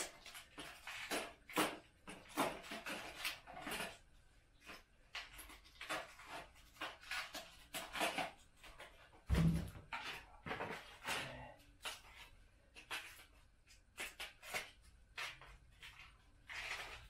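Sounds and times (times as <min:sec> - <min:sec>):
plastic packets and paper rustling: 0:00.0 - 0:17.0
dull thump: 0:09.3 - 0:09.8.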